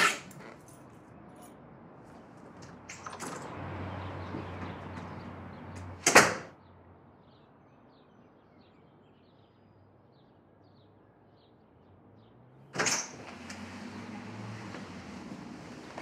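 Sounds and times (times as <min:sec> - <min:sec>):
door shutting with bang: 0:06.0 - 0:06.5, 0:12.8 - 0:16.0.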